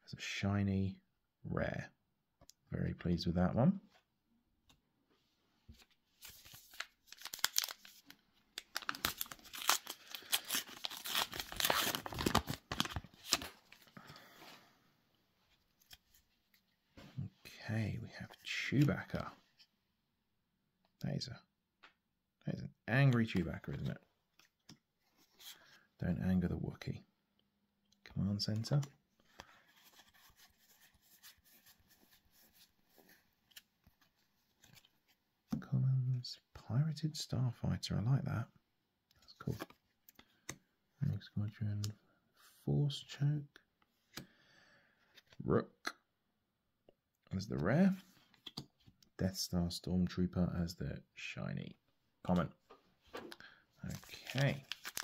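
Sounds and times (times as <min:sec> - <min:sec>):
trading cards clicking and rustling: 0:06.2 - 0:13.9, 0:53.2 - 0:55.0
wrapper tearing and crinkling: 0:06.5 - 0:13.5, 0:53.9 - 0:55.0.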